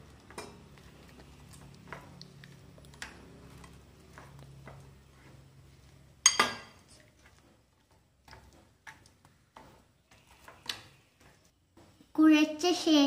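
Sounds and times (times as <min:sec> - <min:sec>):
utensils clinking on glass bowl: 0:06.2 - 0:06.8.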